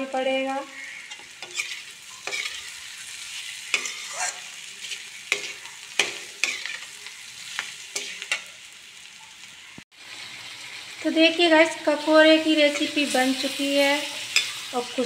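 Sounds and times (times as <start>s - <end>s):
frying sizzle: 0.0s - 15.0s
metal spatula scraping pan: 0.7s - 8.5s, 12.6s - 14.8s.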